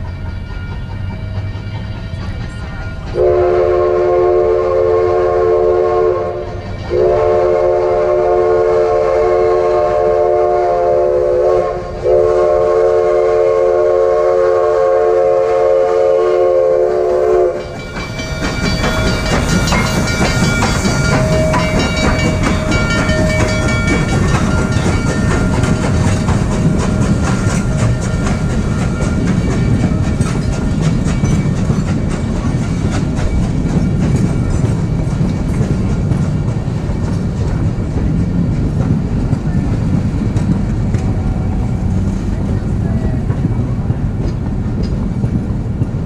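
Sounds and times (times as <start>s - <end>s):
wheels clattering on rails: 0.0s - 4.1s, 5.8s - 7.8s, 17.0s - 46.0s
train rumbling: 0.0s - 46.0s
steam locomotive whistle blasts: 3.1s - 17.8s.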